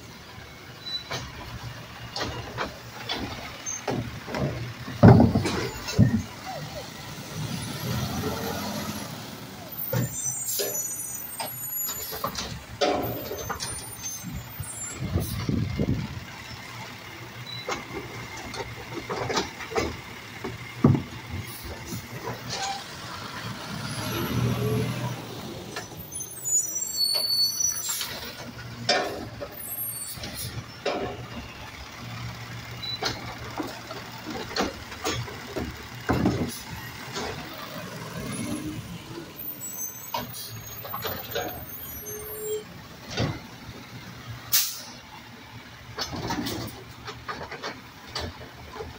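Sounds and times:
diesel engine running: 0.0 - 48.9
metal clanks and bangs: 0.8 - 6.6, 9.8 - 16.1, 27.1 - 31.6, 32.8 - 38.9, 39.5 - 43.5.

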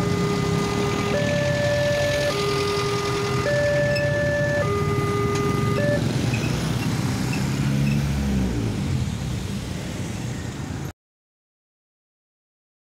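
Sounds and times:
two-tone crossing alarm: 0.0 - 7.4
cars and motorbikes passing: 0.0 - 10.9.

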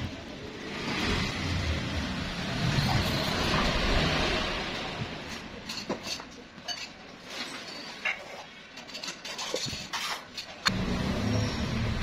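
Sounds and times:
rushing noise with low rumble: 0.0 - 5.5.

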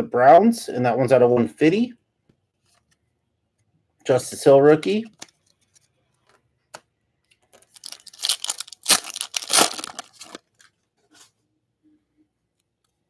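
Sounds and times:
wrapper tearing and crinkling: 7.6 - 10.7.

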